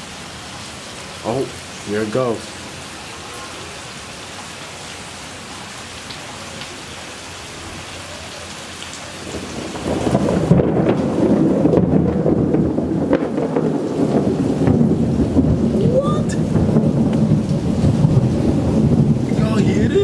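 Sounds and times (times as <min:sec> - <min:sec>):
steady rain: 0:00.0 - 0:20.0
low rumble of thunder: 0:09.2 - 0:20.0.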